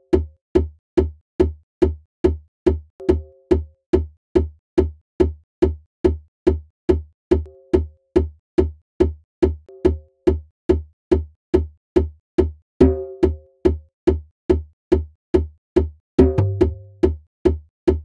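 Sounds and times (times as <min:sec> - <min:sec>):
percussion loop thuds and clicks: 0:00.0 - 0:18.0.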